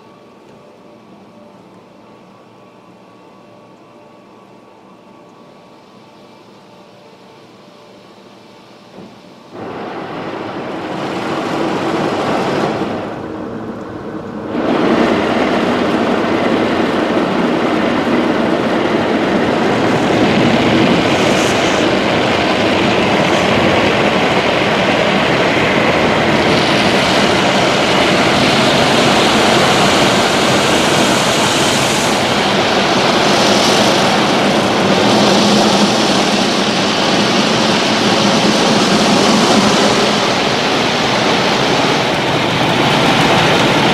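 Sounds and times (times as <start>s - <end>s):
car wash brushes and water rushing: 9.6s - 43.9s.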